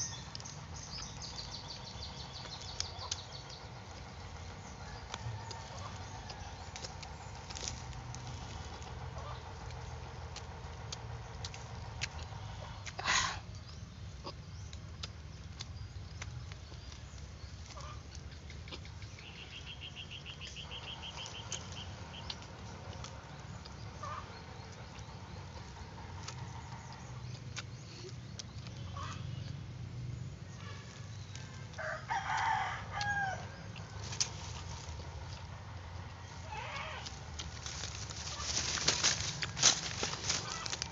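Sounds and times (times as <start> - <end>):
low background hum: 0.0 - 40.9
rooster crowing: 4.6 - 6.9, 31.7 - 33.9.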